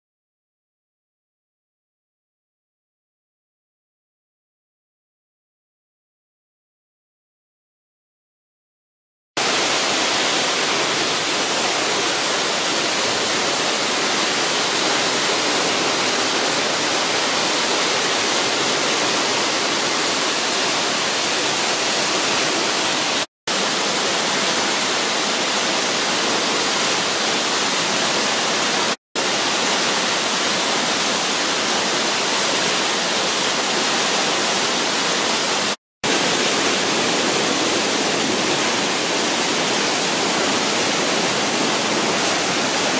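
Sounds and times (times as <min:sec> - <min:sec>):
waterfall rushing: 0:09.4 - 0:42.9.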